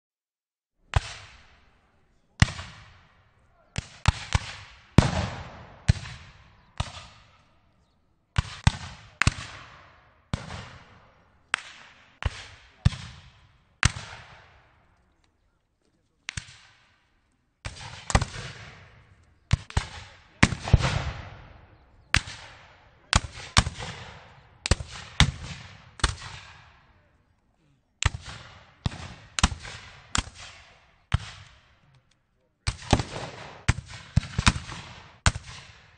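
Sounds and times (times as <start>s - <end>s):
rifle shots: 2.4s - 7.5s, 8.4s - 14.8s, 17.6s - 27.0s, 28.0s - 31.8s, 32.7s - 35.9s.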